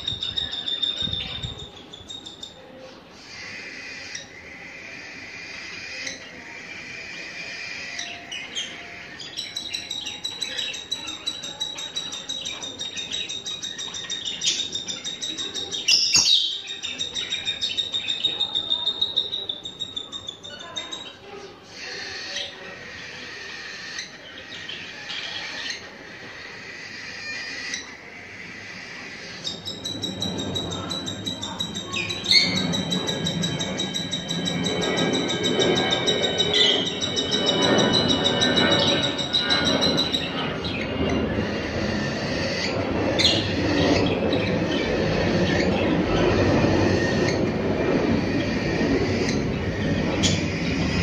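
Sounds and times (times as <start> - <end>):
birds chattering: 0.0 - 51.0
high bird chirps: 5.1 - 21.3, 29.0 - 47.5.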